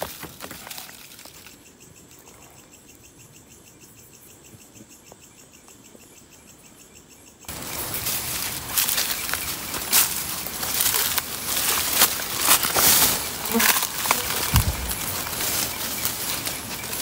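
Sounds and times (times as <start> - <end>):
night insects chirping: 0.0 - 17.0
loud rustling: 7.5 - 17.0.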